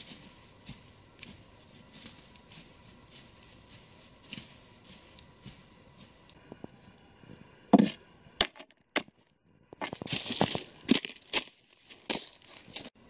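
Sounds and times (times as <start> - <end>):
ice cracking under boot: 9.8 - 12.9.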